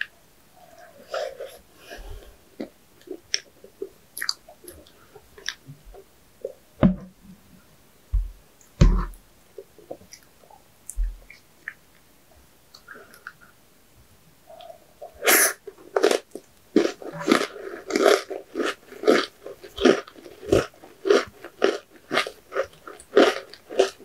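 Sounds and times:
chewing sweets with mouth clicks: 0:02.6 - 0:05.6, 0:15.6 - 0:24.0
heavy low thuds: 0:06.8 - 0:07.4, 0:08.1 - 0:09.2.

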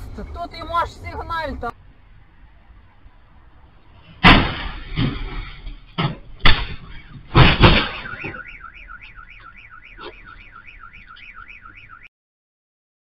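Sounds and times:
car crash impacts: 0:04.1 - 0:10.1
car alarm warbling: 0:06.7 - 0:12.1.

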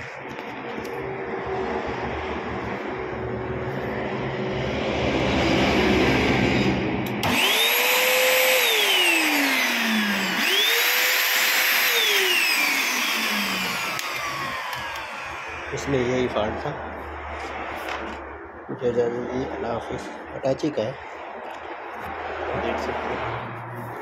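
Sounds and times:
vacuum cleaner motor whirring: 0:07.1 - 0:15.8.

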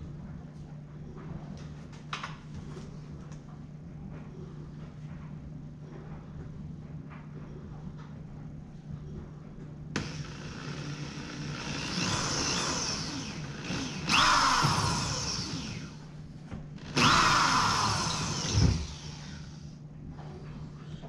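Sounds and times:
electric drill cutting steel: 0:10.0 - 0:16.0, 0:16.8 - 0:19.6.

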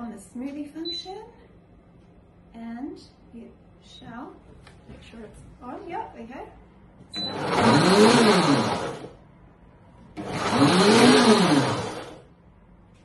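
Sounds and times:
blender motor speeding up: 0:07.2 - 0:09.2, 0:10.2 - 0:12.2.

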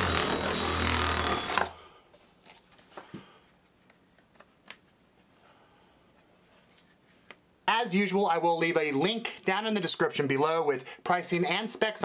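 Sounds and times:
motor cutting off: 0:00.0 - 0:01.8.

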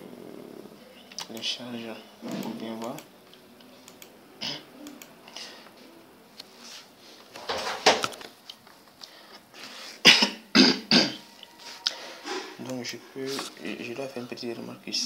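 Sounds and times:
person coughing: 0:10.0 - 0:11.3.

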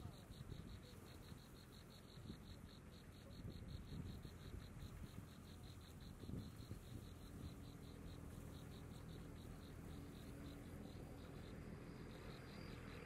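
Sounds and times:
faint insect chirping: 0:00.0 - 0:13.0.

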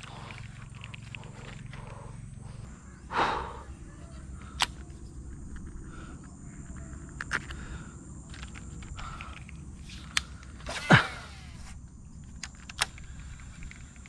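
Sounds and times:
sharp clicks: 0:04.5 - 0:10.6, 0:12.2 - 0:14.0.

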